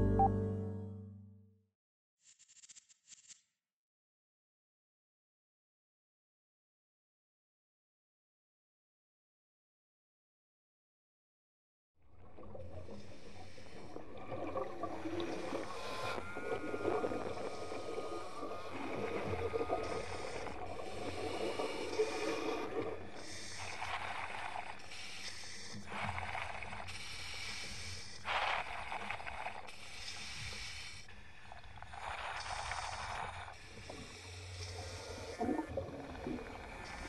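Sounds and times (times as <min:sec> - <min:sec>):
diver breathing through regulator: 0:15.3 - 0:31.1.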